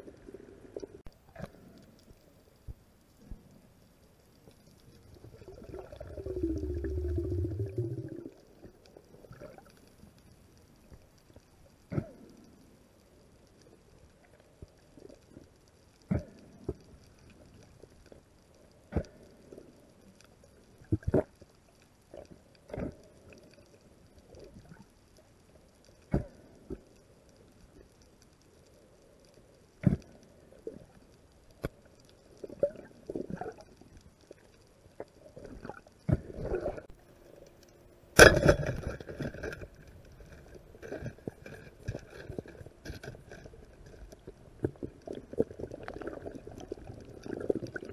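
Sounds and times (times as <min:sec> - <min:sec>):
rushing bubbly water noise: 0:05.1 - 0:09.7, 0:44.6 - 0:47.9
underwater knocks and thumps: 0:38.2 - 0:40.1.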